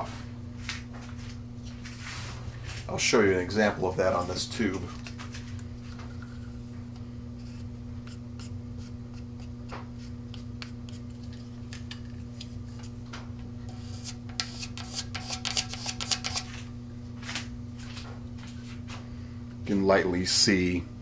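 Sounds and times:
low electrical hum: 0.0s - 21.0s
wooden stick scraping: 7.4s - 13.0s, 13.7s - 16.6s.

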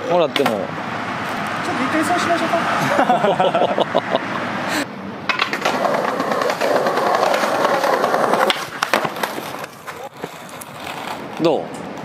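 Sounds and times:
skateboard wheels rolling on pavement: 0.0s - 3.6s, 4.4s - 12.0s
skateboard clacks: 5.3s - 12.0s.

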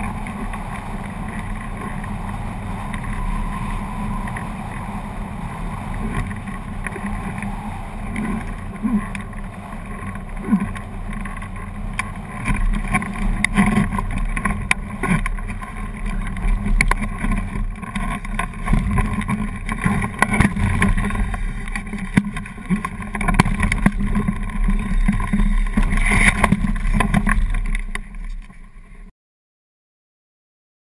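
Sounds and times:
wind rushing over microphone: 0.0s - 29.1s.

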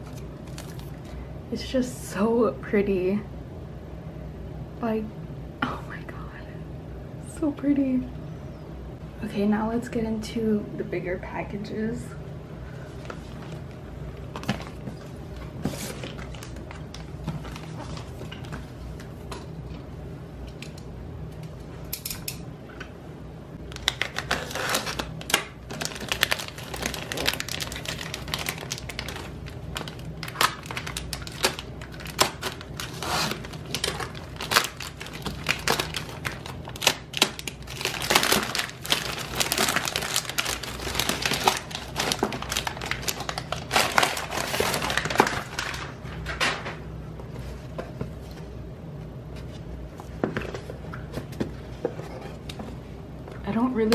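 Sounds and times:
packaging rustling: 0.0s - 1.2s, 12.8s - 19.1s, 23.6s - 46.8s.

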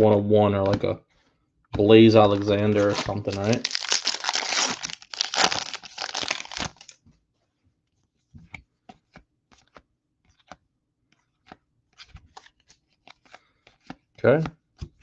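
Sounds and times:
foil wrapper tearing: 2.3s - 7.0s.

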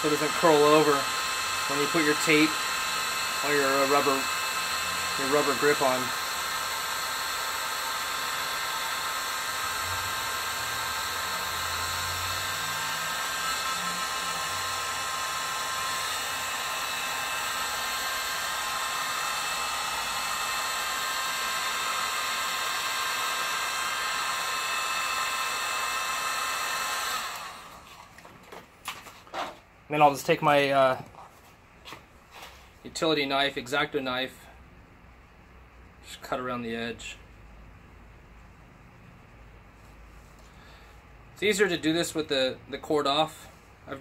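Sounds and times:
heat gun blowing with whine: 0.0s - 30.9s.

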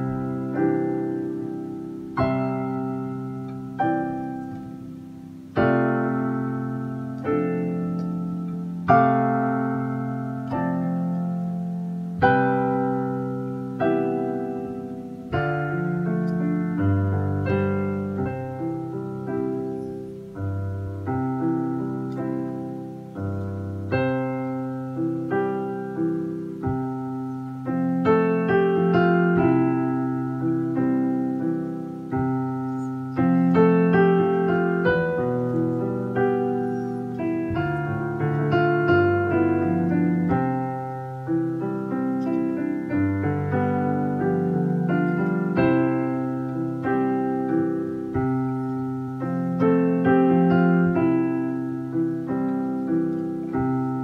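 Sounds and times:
slow piano music: 0.0s - 54.0s.

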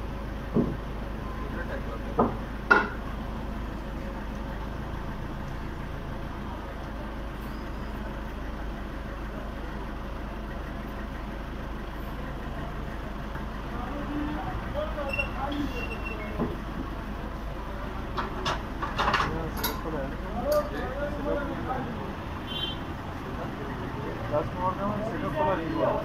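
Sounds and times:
truck engine idling: 0.0s - 26.0s
sharp knocks: 0.5s - 0.8s, 2.2s - 3.0s.

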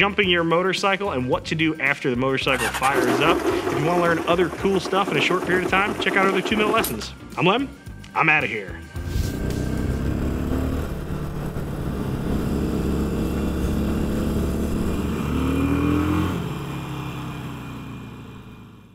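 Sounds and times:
motorcycle engine running: 2.5s - 7.2s, 9.0s - 18.9s.

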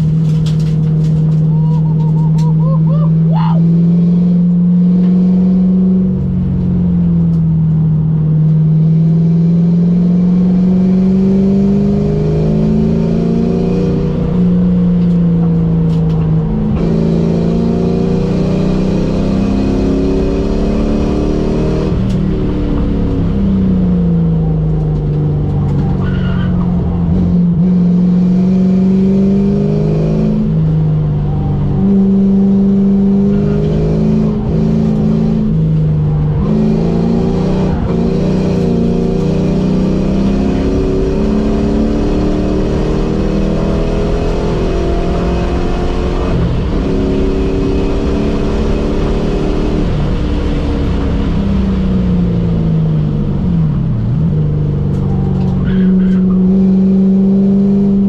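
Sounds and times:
car engine revving and shifting: 0.0s - 58.0s.

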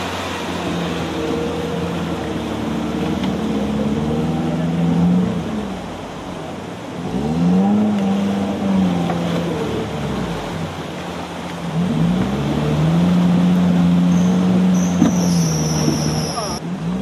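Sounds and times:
engine revving: 7.0s - 10.9s, 11.6s - 17.0s.

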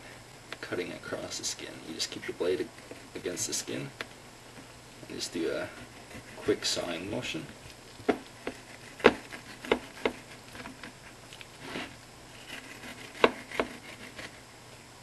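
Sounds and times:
knife scraping fish skin: 8.2s - 14.4s.

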